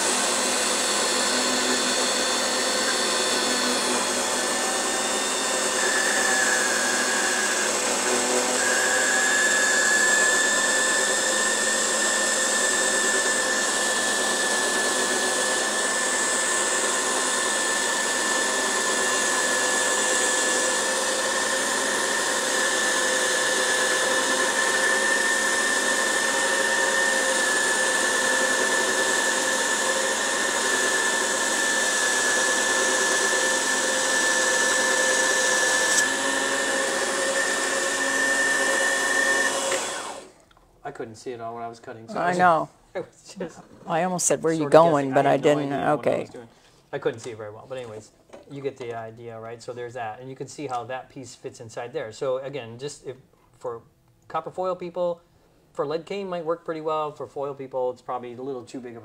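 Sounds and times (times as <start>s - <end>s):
saw motor whine: 0.0s - 40.3s.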